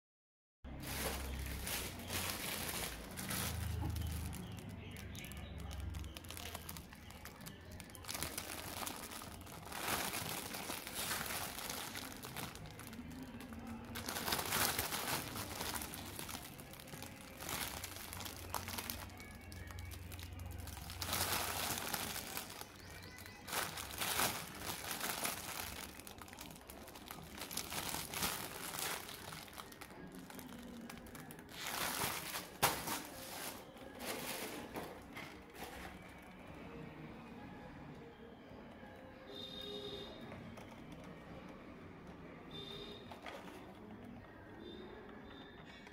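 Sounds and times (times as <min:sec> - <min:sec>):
plastic film crinkling: 0:00.7 - 0:36.0.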